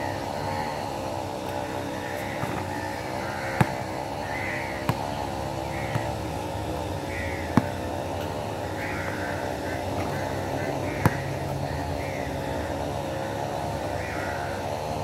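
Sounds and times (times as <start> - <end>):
steady machine drone: 0.0 - 15.0
basketball bouncing on concrete: 1.4 - 13.1.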